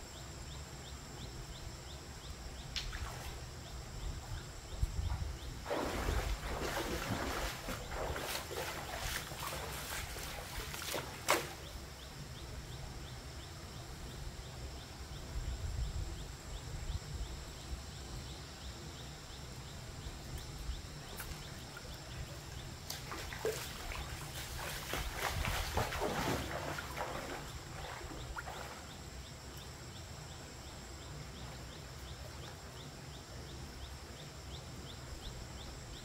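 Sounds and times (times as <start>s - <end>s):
water and wind rumble: 2.4s - 12.1s, 20.0s - 29.6s
feet splashing through water: 5.6s - 11.7s, 22.8s - 28.9s.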